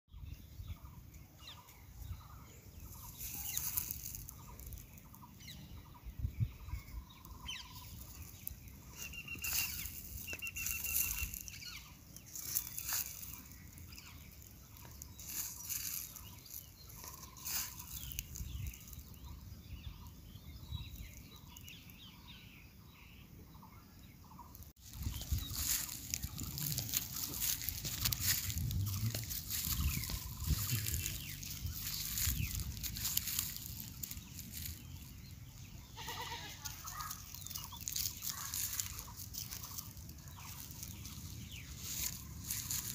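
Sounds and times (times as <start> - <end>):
bird calls and chirps: 0.1 - 42.9
dense rustling noise: 24.8 - 35.4.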